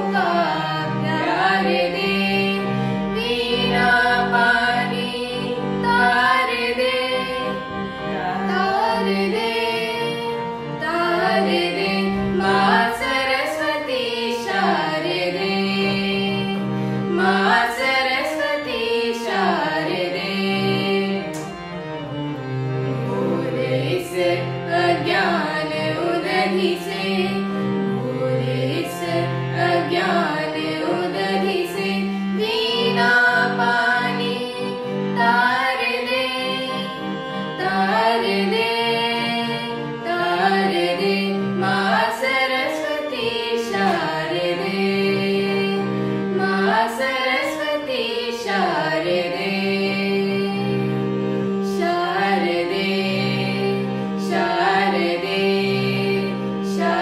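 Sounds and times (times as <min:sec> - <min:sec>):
boy and woman singing: 0:00.0 - 0:22.1, 0:22.9 - 0:57.0.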